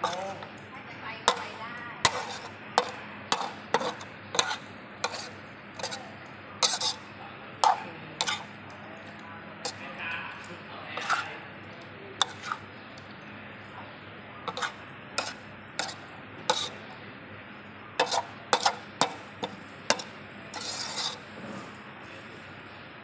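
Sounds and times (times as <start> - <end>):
metal spatula scraping a wok: 0.0 - 0.6, 1.3 - 8.6, 9.6 - 9.8, 11.0 - 11.4, 12.2 - 12.7, 14.5 - 16.8, 18.0 - 21.8.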